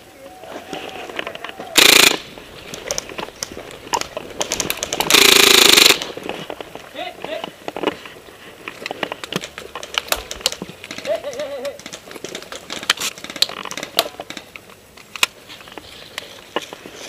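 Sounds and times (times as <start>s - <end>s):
sharp clicks and snaps: 8.8s - 15.4s.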